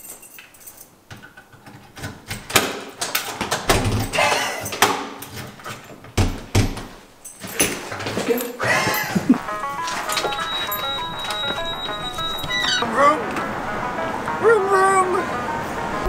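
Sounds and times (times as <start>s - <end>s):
keys and latch rattling: 0.0s - 9.1s.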